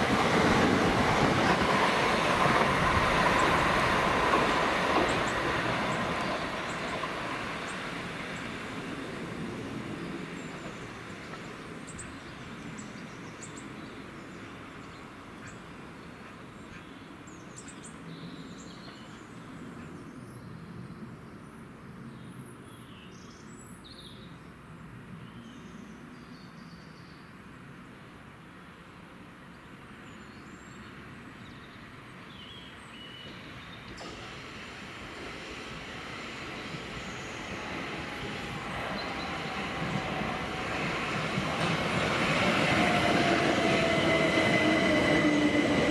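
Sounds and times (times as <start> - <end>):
electric train rumbling: 0.0 - 13.8, 33.3 - 45.9
small birds chirping: 35.2 - 45.8.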